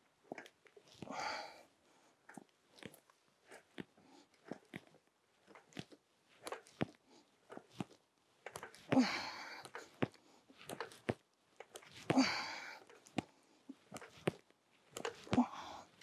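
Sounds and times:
wheelchair lever clicks and knocks: 5.5s - 9.0s, 13.9s - 15.4s
loud strained breath: 8.8s - 10.1s, 12.0s - 13.0s.

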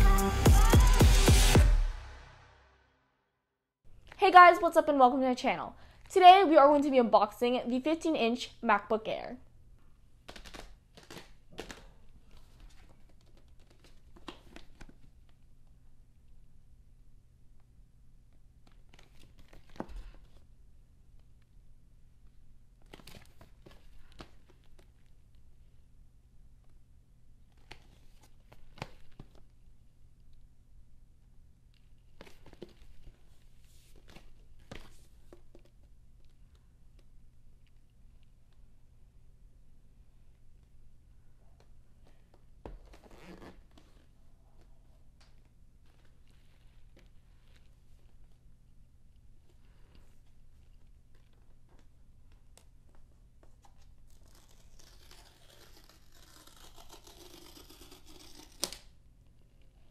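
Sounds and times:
tear strip tearing cardboard: 54.1s - 58.9s.

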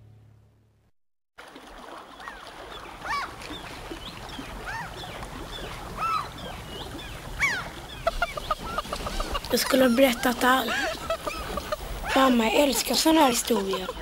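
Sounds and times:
water washing at shore: 1.4s - 14.0s
bird cries: 2.2s - 12.4s.

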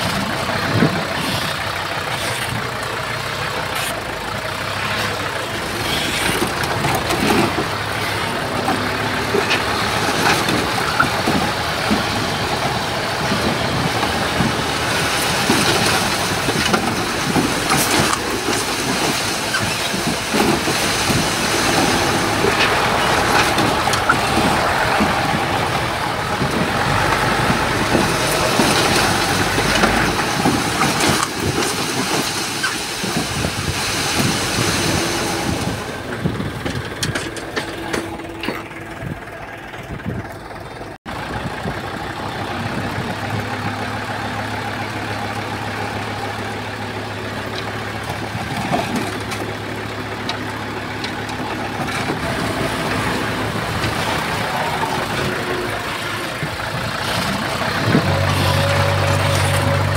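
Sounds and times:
heavy machinery diesel engines: 0.0s - 59.9s
knocks and rattles: 4.9s - 41.0s.

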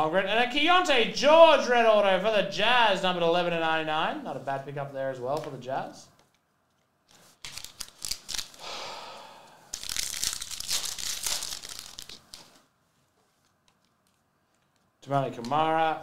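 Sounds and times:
foil wrapper tearing and crinkling: 7.2s - 8.6s, 9.7s - 12.6s.

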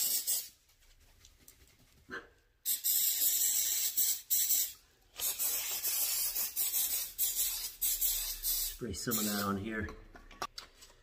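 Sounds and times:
aerosol spray hissing: 0.0s - 0.5s, 2.7s - 9.6s.

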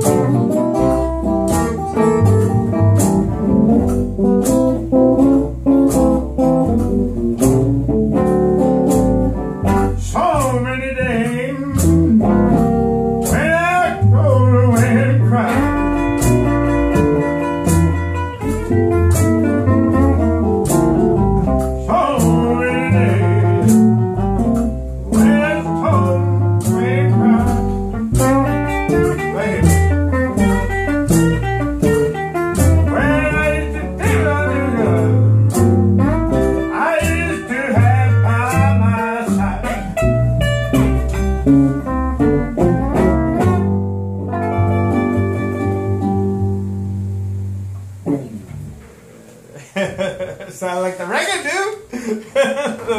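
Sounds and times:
double bass plucked: 0.0s - 50.4s
guitar: 0.0s - 52.9s
person singing: 10.0s - 12.0s, 13.3s - 16.0s, 21.8s - 23.8s, 25.1s - 27.7s, 32.8s - 35.6s, 36.6s - 40.0s.

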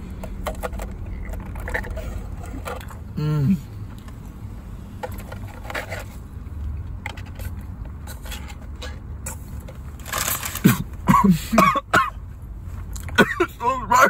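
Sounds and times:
man coughing: 10.6s - 12.2s, 13.1s - 14.0s.

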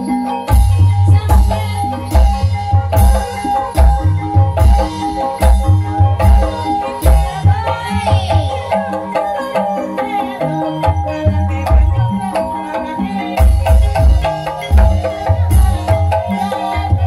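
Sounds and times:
tuned percussion melody: 0.0s - 17.0s.

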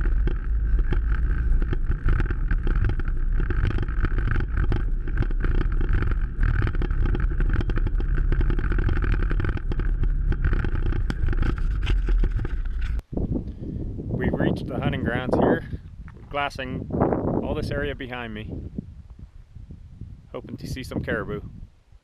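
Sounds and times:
knocks and clatter of vehicle: 0.0s - 13.0s
off-road vehicle engine running: 0.0s - 13.0s.

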